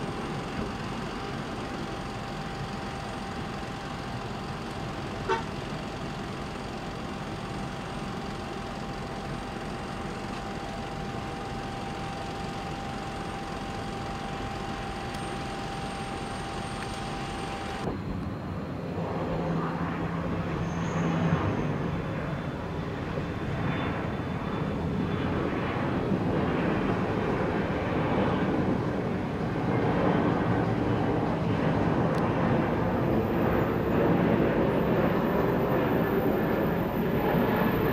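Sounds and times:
jet engines approaching: 0.0s - 37.9s
mechanical whine: 0.0s - 37.9s.

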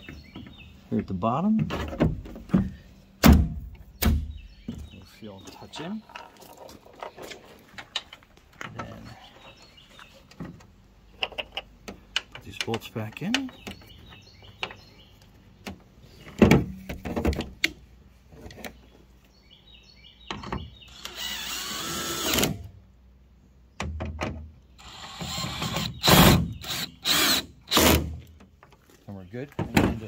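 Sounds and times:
cordless drill driving bolts: 20.9s - 22.7s, 24.8s - 28.2s.

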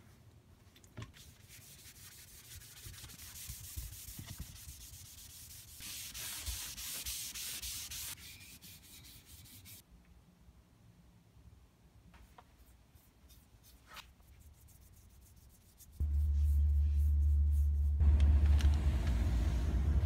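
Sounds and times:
rag rubbing over wood: 1.7s - 9.8s.

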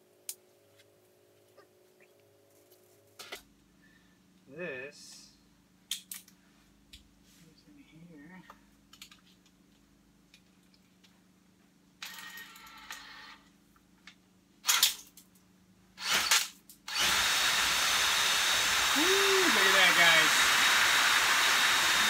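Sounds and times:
cordless drill spinning brush: 16.0s - 22.0s.

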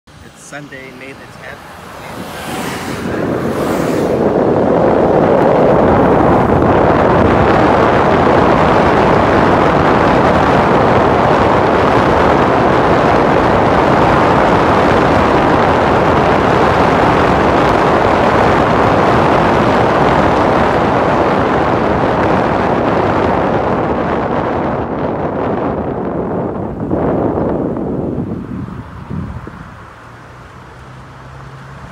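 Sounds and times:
street traffic hiss: 0.1s - 6.8s, 27.4s - 31.9s
wind rumbling on microphone: 0.1s - 31.9s.

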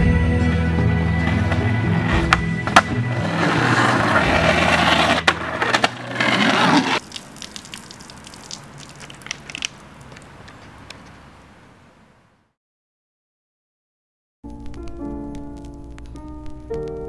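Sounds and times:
skateboard wheels rolling on asphalt: 1.0s - 11.4s
skateboard clack: 1.2s - 7.0s.

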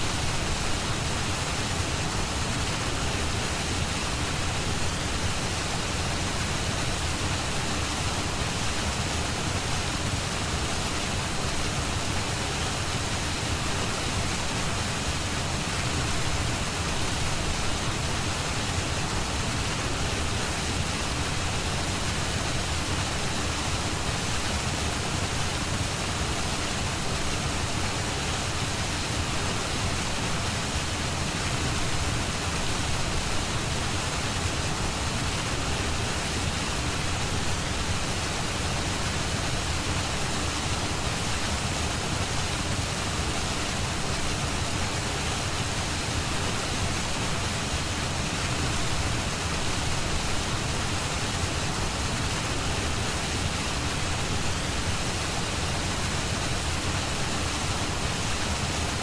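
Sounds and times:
steady rushing hiss: 0.0s - 59.0s.

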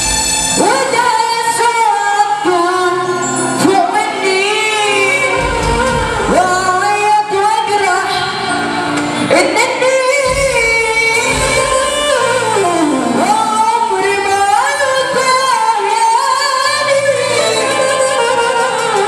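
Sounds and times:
man singing into a microphone: 0.6s - 8.6s.

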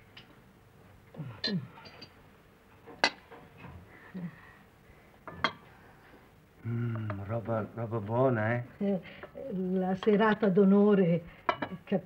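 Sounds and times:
plates and cutlery clinking: 5.2s - 5.7s, 11.4s - 11.8s.

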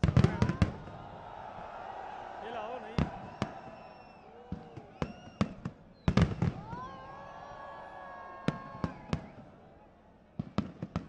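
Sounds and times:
fireworks bangs and crackles: 0.0s - 1.0s, 3.0s - 7.2s, 8.4s - 9.5s, 10.4s - 11.0s
firework whistling tone: 3.0s - 7.6s.

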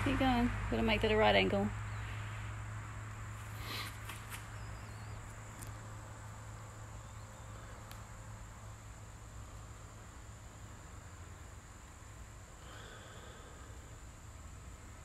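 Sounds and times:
low hum: 0.0s - 3.7s.

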